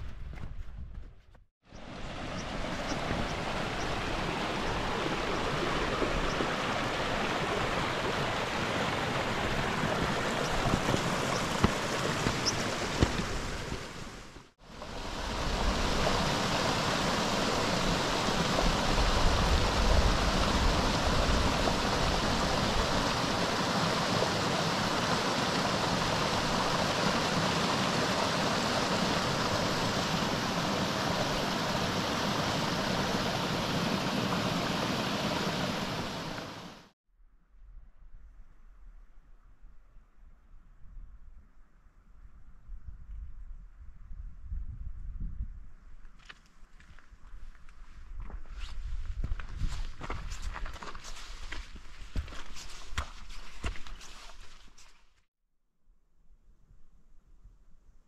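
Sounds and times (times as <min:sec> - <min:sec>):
stream rushing over rocks: 0:01.8 - 0:36.9.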